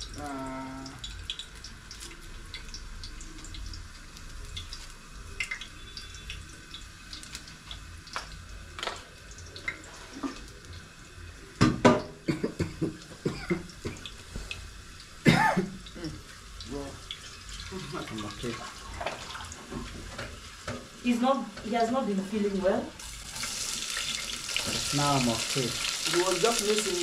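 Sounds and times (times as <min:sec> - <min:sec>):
steady hiss: 0:23.0 - 0:27.0.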